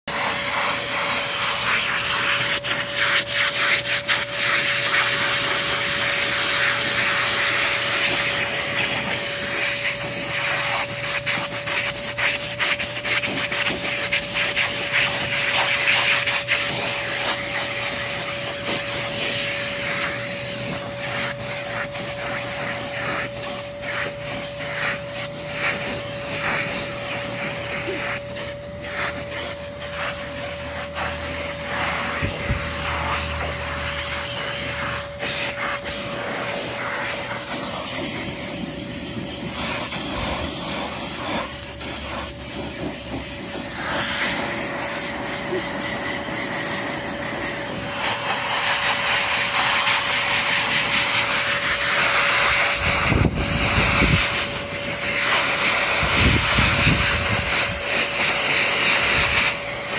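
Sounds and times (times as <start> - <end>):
dog blower motor whine: 0.0 - 59.9
rush of air: 52.2 - 58.0.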